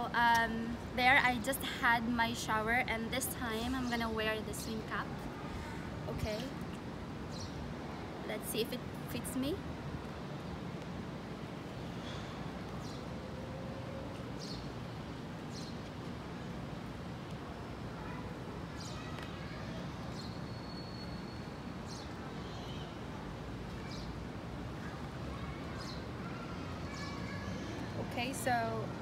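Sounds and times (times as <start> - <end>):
low outdoor background hum: 0.0 - 29.0
small birds chirping: 7.3 - 7.7, 11.6 - 13.2, 14.1 - 16.6, 18.0 - 28.8.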